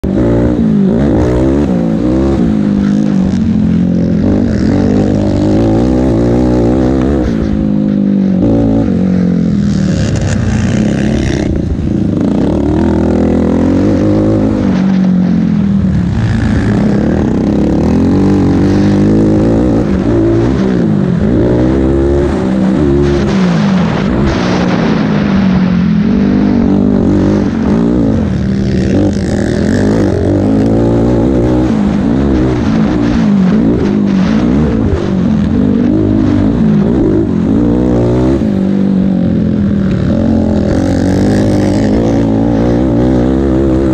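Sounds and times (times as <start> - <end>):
quad engine revving: 0.0 - 25.1, 26.1 - 43.9.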